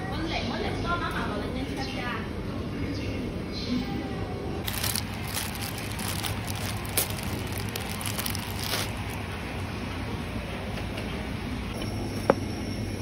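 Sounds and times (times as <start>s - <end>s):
plastic wrap crinkling: 4.6s - 9.3s.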